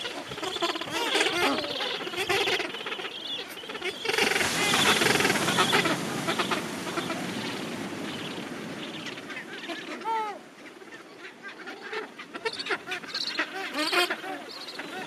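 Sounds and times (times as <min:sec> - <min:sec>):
downward-sliding penguin call: 0:00.0 - 0:02.7
penguin colony calling: 0:00.0 - 0:07.4, 0:11.6 - 0:15.0.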